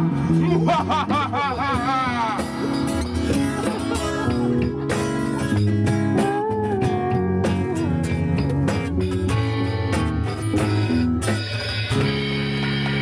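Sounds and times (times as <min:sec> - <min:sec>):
man singing with vibrato: 0:00.0 - 0:02.8
steady low bass notes: 0:00.0 - 0:13.0
strummed guitar chords: 0:00.0 - 0:13.0.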